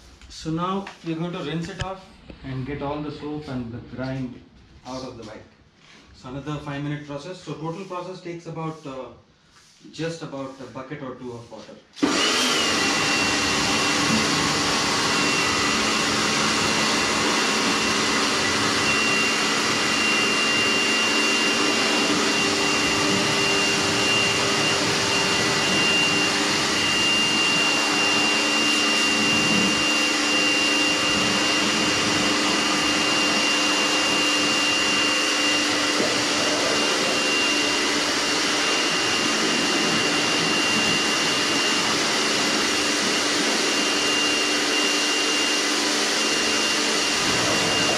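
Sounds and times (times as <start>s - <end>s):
pressure washer motor whine: 12.0s - 47.9s.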